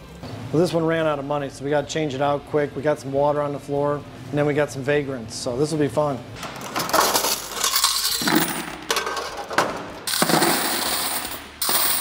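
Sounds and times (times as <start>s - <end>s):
coins jingling and clattering: 6.4s - 12.0s.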